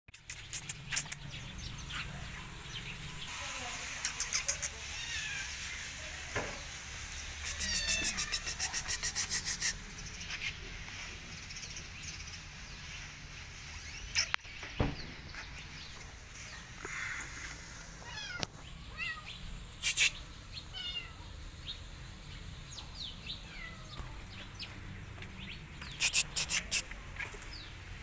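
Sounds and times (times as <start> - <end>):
high clicking chirps: 0.1 - 1.6, 25.8 - 26.9
kitten meowing: 7.4 - 9.7.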